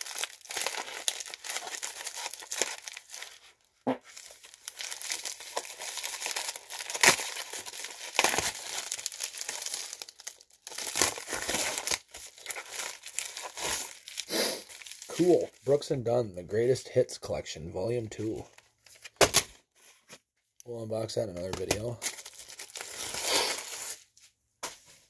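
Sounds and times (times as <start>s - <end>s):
packaging crinkling: 0.0s - 15.6s, 21.4s - 24.1s.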